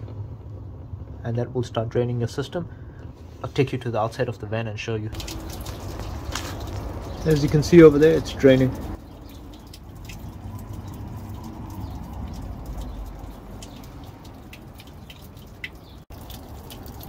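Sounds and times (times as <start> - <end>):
water dripping onto ground: 5.1 - 17.0.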